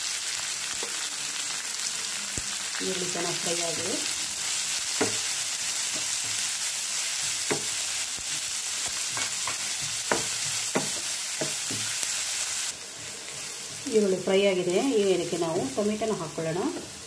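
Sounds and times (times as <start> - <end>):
onions sizzling in oil: 0.0 - 17.0.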